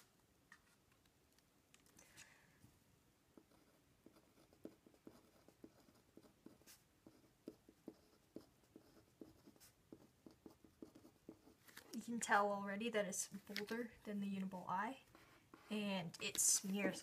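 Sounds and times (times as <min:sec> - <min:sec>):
pen scratching on paper: 0:03.3 - 0:11.9, 0:15.0 - 0:17.0.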